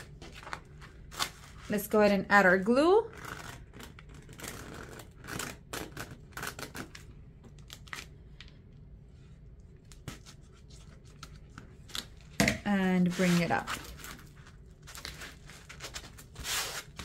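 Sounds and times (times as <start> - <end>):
hands rustling foam sheet: 12.7 - 17.0.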